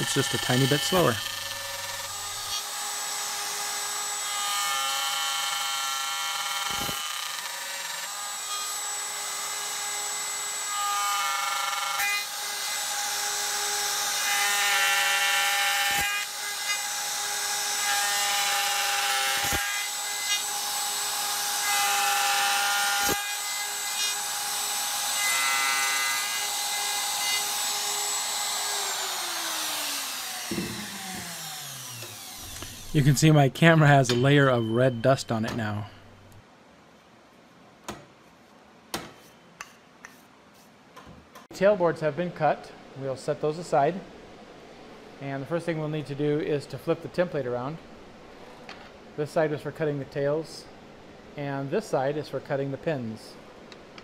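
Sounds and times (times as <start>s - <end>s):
router cutting wood: 0.0s - 33.4s
router motor winding down: 27.5s - 33.0s.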